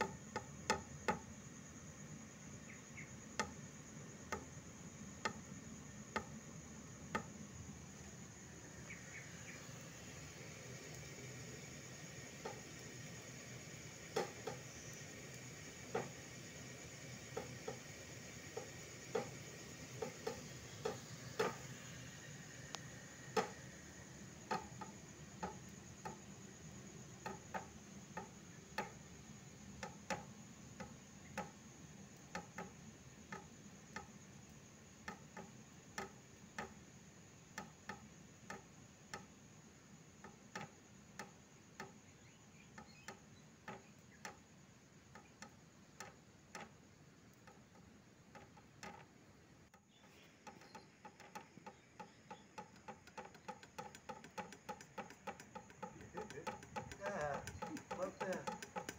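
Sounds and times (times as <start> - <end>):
faint ticking: 2.6 - 36.8, 45.1 - 58.9.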